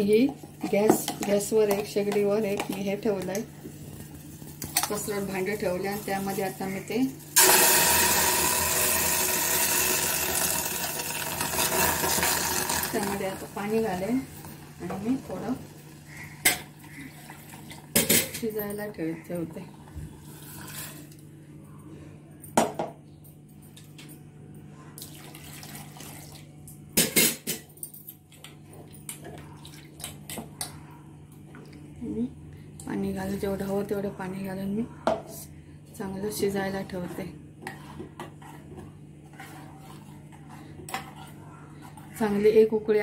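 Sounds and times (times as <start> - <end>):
mixer grinder motor whirring: 7.4 - 13.2.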